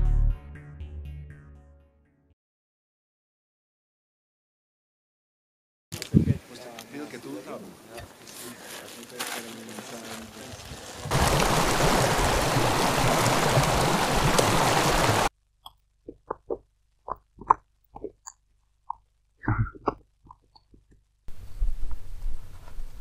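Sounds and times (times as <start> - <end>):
water splashing into plastic bladder: 11.0 - 15.3.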